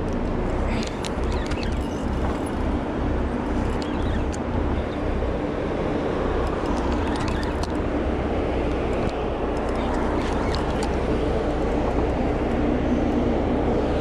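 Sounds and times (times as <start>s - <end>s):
light clicks of gear handled: 0.0s - 2.8s, 3.4s - 5.0s, 6.4s - 7.9s, 8.6s - 13.2s
boat engine rumbling: 0.0s - 14.0s.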